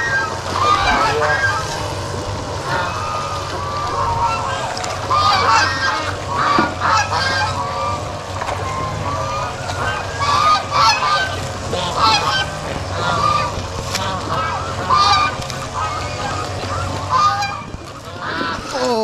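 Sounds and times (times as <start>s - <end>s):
geese honking: 0.0s - 19.0s.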